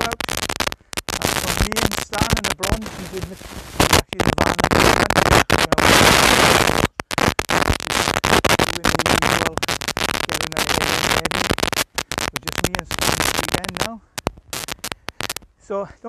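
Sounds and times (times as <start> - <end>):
microphone crackling and hissing: 0.0 - 16.0.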